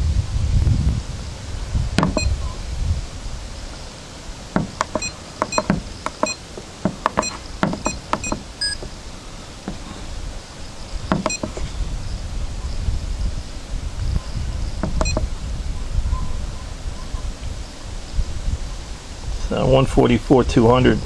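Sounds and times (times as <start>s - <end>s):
low wind rumble on microphone: 0.0s - 21.0s
keypad button clicks: 2.0s - 2.3s, 4.6s - 8.9s, 11.1s - 11.6s, 14.8s - 15.2s
short electronic beeps: 2.0s - 2.4s, 4.6s - 6.4s, 7.1s - 8.9s, 11.1s - 11.6s, 14.8s - 15.2s.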